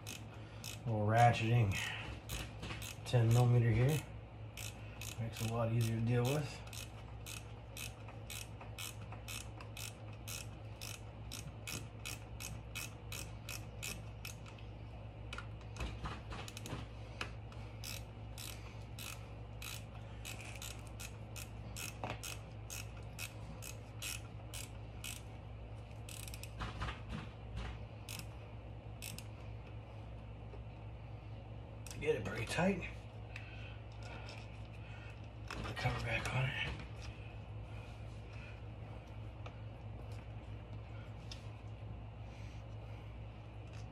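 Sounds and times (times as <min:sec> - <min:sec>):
ratcheting wrench clicking: 0:00.0 - 0:00.9, 0:01.7 - 0:04.0, 0:04.6 - 0:14.6, 0:16.4 - 0:16.8, 0:17.8 - 0:25.3, 0:25.9 - 0:26.6, 0:28.1 - 0:28.3, 0:29.0 - 0:29.3.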